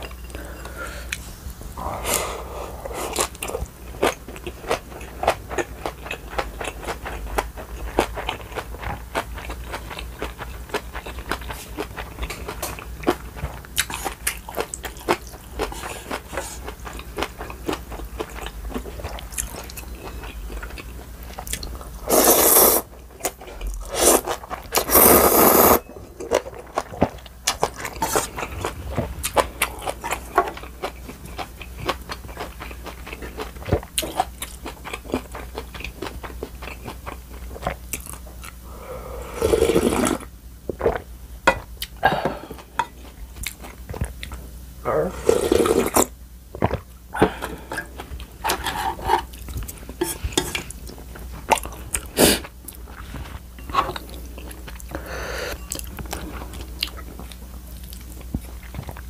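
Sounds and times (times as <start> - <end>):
noodles being slurped: 23.8 - 25.8, 39.2 - 40.2
crisp chewing and crunching: 26.1 - 38.7.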